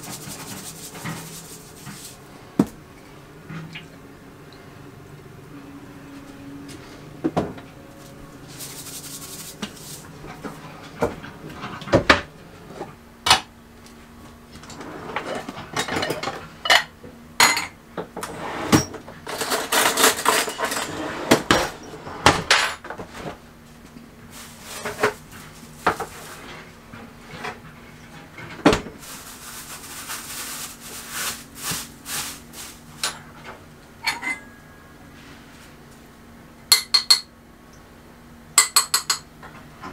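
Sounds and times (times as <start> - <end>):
pots and utensils clanking: 14.7 - 23.0, 33.0 - 34.8.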